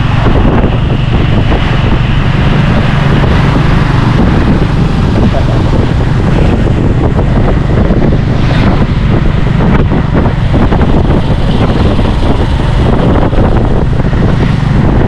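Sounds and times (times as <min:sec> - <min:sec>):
motorbike engine running: 0:00.0 - 0:15.0
road noise: 0:00.0 - 0:15.0
wind buffeting microphone: 0:00.0 - 0:15.0.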